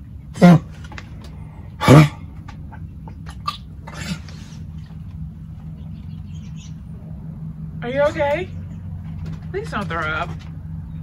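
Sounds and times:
dog gagging and retching: 1.8s - 5.0s.

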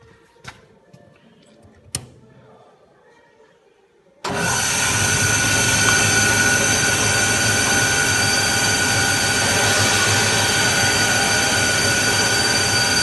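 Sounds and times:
table saw running: 4.3s - 13.0s.

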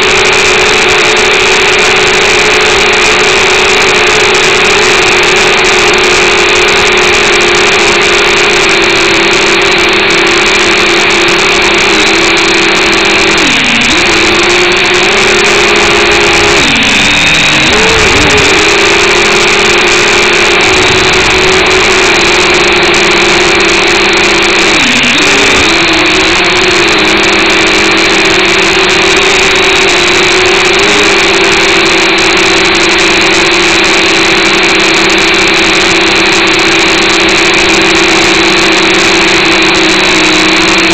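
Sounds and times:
quadcopter motors whining: 0.0s - 40.9s.

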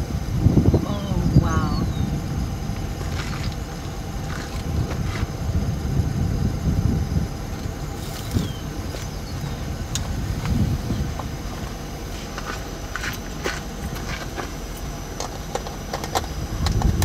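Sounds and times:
car idling: 0.0s - 17.0s.

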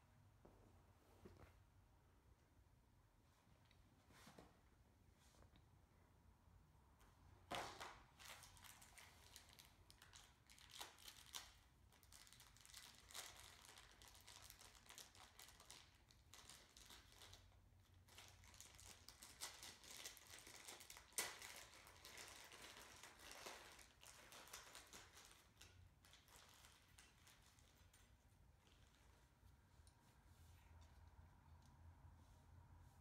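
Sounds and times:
plastic wrapping crinkling: 7.5s - 29.3s.

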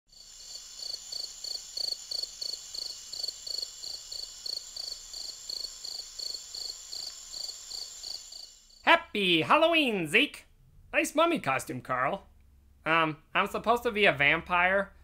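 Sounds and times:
crickets chirping: 0.1s - 8.9s.

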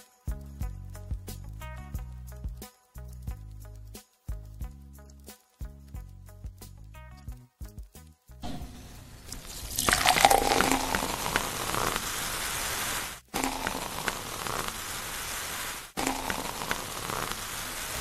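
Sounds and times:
fizzy drink pouring into glass: 8.4s - 18.0s.

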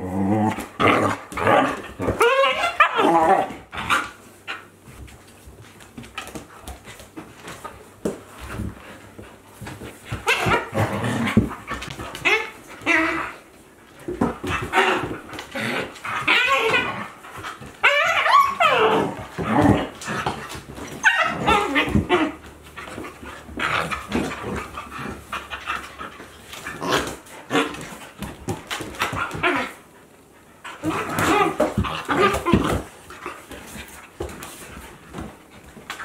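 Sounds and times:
dogs whining and yipping: 2.0s - 4.0s, 16.0s - 19.9s, 20.8s - 22.6s.

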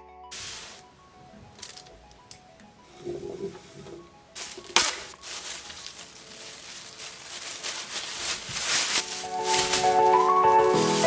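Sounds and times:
plastic bag crinkling: 0.4s - 11.0s
plastic bag snapping: 1.4s - 2.4s, 4.4s - 11.0s.

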